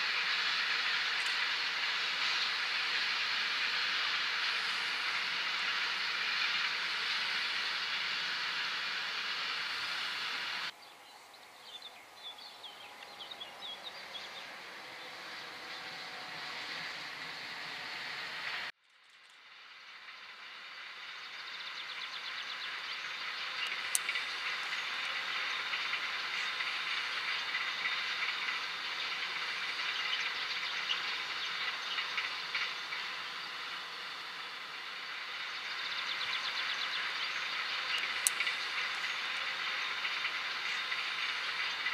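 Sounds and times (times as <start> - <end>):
freight train rolling past: 0.0 - 10.7, 12.8 - 18.7, 19.6 - 41.9
birds chirping: 0.0 - 18.6, 21.1 - 41.9
electric passenger train approaching: 0.0 - 18.8, 19.5 - 41.9
faint clicks: 37.8 - 39.5.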